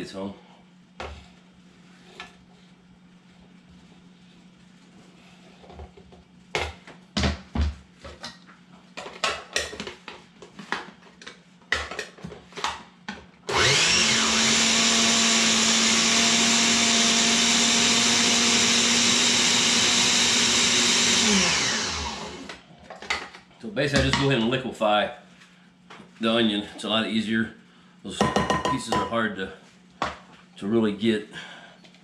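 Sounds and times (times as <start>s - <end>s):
blender motor running: 13.5s - 22.6s.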